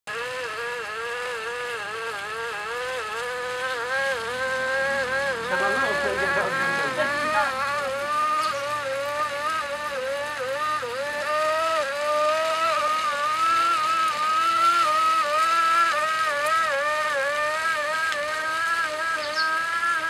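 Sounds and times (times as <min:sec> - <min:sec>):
lower whine: 0:00.1 - 0:20.0
silk-reeling wheel whining: 0:00.1 - 0:20.0.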